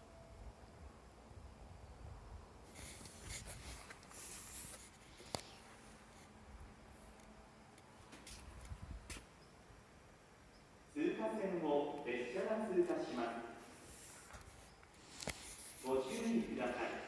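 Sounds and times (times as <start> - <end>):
scratchy rubbing of handheld phone: 2.7 - 5.6, 13.8 - 16.5.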